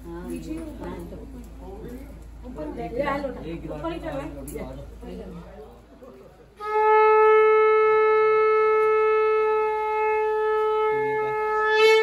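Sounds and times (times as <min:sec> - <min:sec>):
conch shell blown: 0:06.6 - 0:12.0.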